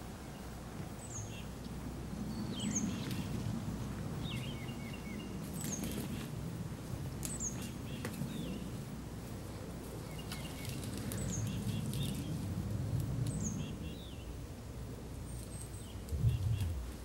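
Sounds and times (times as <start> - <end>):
small birds chirping: 0.2 - 3.4, 4.2 - 6.3, 7.2 - 8.8, 9.9 - 12.4, 15.2 - 17.0.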